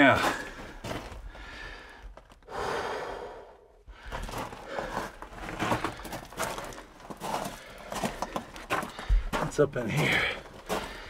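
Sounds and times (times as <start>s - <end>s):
footsteps crunching on loose rock: 0.0s - 2.5s, 3.9s - 11.0s
breathy exhale: 1.4s - 5.0s.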